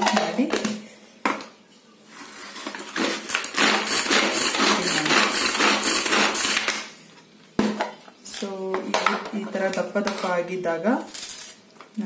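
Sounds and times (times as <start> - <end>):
food chopper blades clattering: 3.0 - 6.7.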